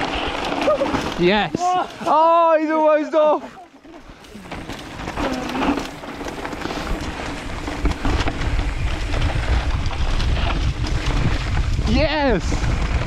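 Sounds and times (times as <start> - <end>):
bike knocks and rattles: 0.0 - 2.4, 3.8 - 13.0
bike tyre noise: 0.0 - 13.0
wind rumbling on microphone: 4.1 - 13.0.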